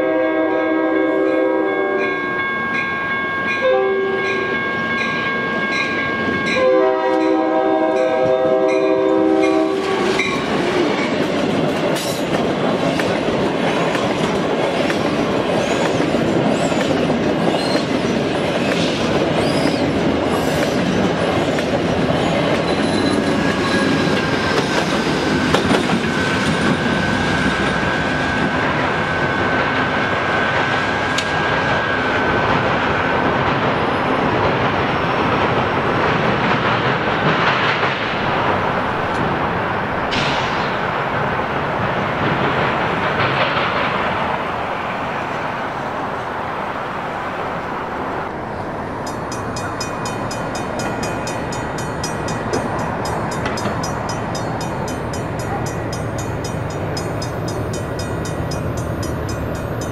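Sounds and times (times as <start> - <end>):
train wheels clattering on rails: 2.8 - 45.6, 48.8 - 59.9
high-pitched wheel squeal: 19.4 - 20.7, 22.2 - 24.9.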